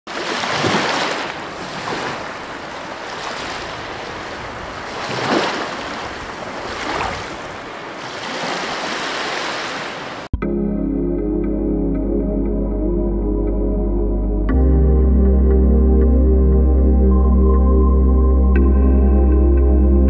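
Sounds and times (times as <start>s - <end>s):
waves breaking on beach: 0.1s - 10.3s.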